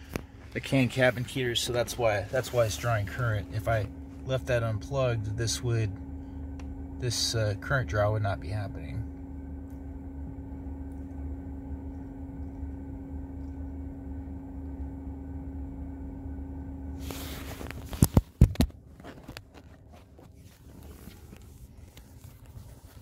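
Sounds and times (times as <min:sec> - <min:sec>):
fan drone and hum: 0:00.0 - 0:23.0.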